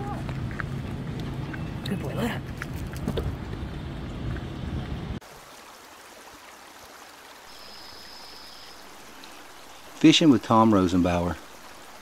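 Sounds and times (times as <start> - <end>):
stream rushing: 5.2 - 12.0.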